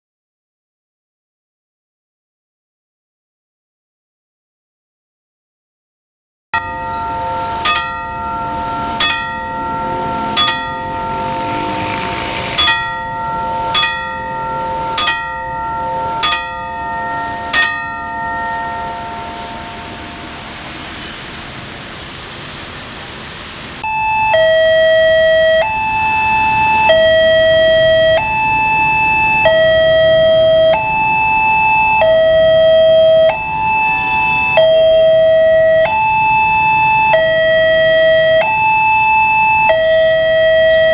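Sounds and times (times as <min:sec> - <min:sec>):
electronic two-tone crossing alarm: 0:06.6 - 0:20.9, 0:23.8 - 0:40.9
level crossing bell ringing: 0:06.6 - 0:21.0, 0:23.8 - 0:40.9.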